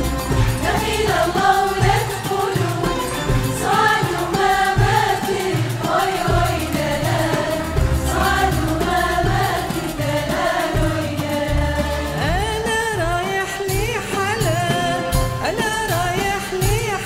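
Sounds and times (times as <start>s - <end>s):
women's choir singing: 0.0s - 12.7s
traditional ensemble playing: 0.0s - 16.9s
frame drum beat: 0.0s - 17.0s.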